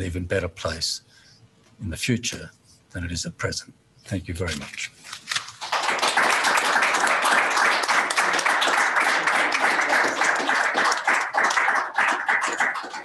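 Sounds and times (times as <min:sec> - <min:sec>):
audience applauding: 0:05.6 - 0:13.0.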